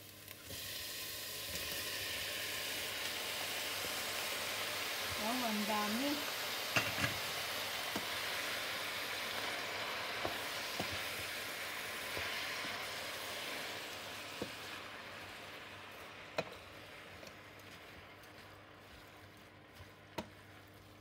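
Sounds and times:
food sizzling in a pot: 0.0 - 21.0
spoon knocking against pot: 6.7 - 7.2
wooden spoon stirring: 15.8 - 21.0.

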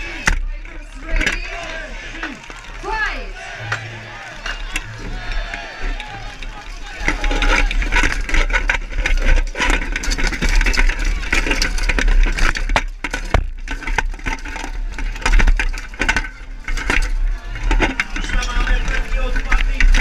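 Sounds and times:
constant low rumble: 0.0 - 20.0
plate armour clattering: 4.5 - 20.0.

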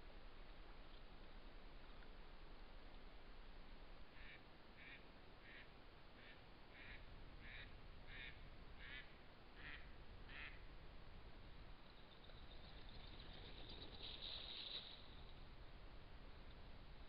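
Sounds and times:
low steady hiss: 0.0 - 17.0
short animal calls: 4.2 - 10.6.

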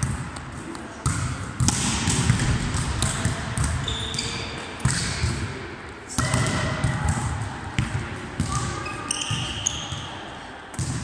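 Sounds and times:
volleyball thuds echoing: 1.0 - 3.9.

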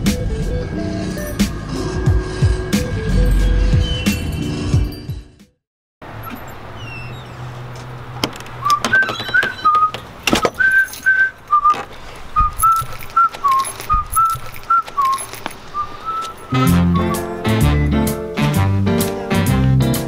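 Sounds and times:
sharp clicks and knocks: 7.8 - 15.6
person whistling a tune: 8.6 - 11.8, 12.4 - 18.2.

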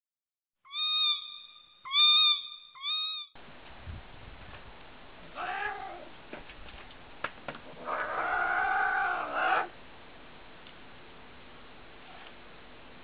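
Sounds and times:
low background hiss: 0.7 - 13.0
cat meowing: 1.9 - 3.3, 5.3 - 6.1.

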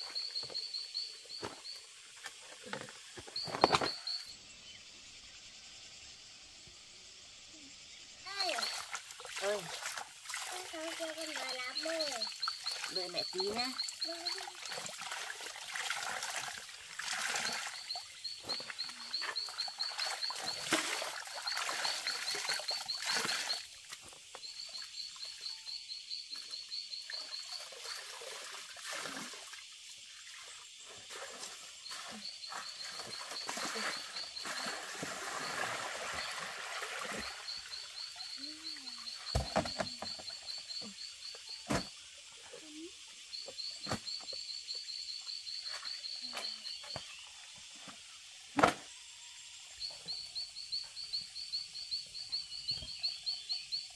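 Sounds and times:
water splashing in a basin: 8.3 - 25.4, 27.0 - 40.9
frog calling in trills: 37.2 - 41.9.

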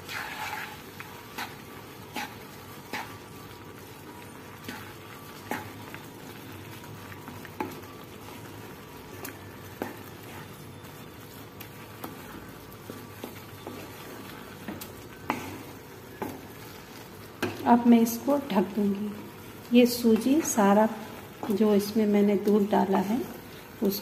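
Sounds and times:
spatula scraping a metal pan: 0.0 - 3.2
food sizzling in a pan: 0.0 - 24.0.

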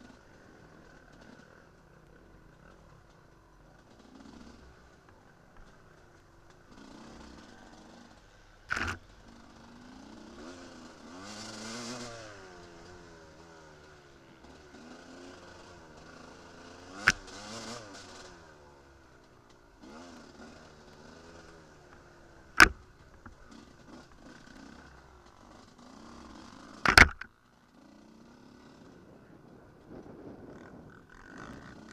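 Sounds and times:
motorcycle engine revving: 0.0 - 31.9
sharp knocks: 26.8 - 27.3.

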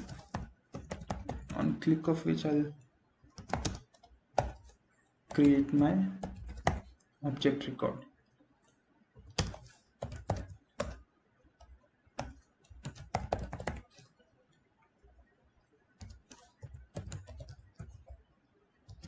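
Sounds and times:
keyboard typing: 0.0 - 7.2, 8.2 - 14.3, 15.0 - 19.0.

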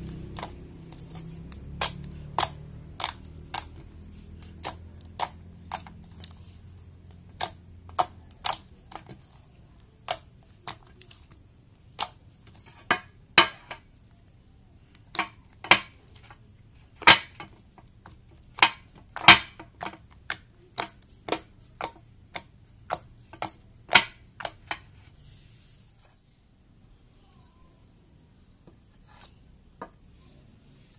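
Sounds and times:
wet pops of kneaded slime: 0.0 - 6.4.

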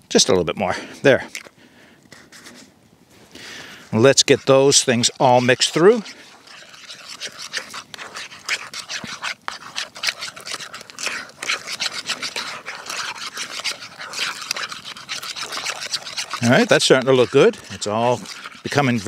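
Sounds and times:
spoon scraping metal bowl: 4.0 - 19.0.

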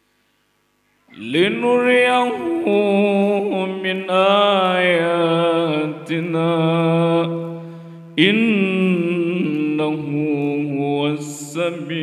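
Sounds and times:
man chanting through microphone: 1.1 - 12.0.

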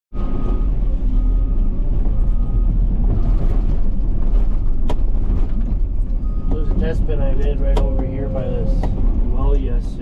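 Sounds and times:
engine rumbling: 0.1 - 10.0.

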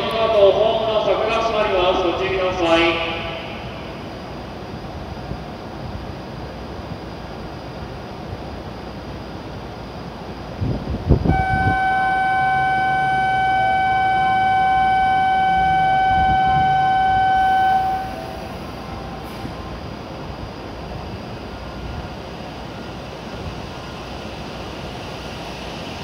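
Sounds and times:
steady background hum: 0.0 - 26.0
electronic warning buzzer: 11.2 - 18.7.

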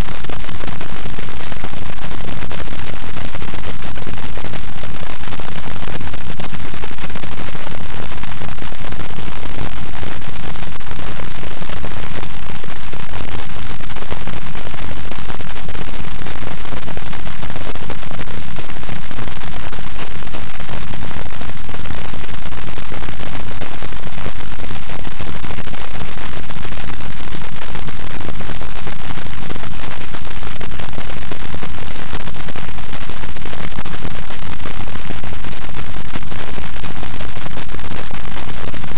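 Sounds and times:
electronic static hiss: 0.0 - 38.9.

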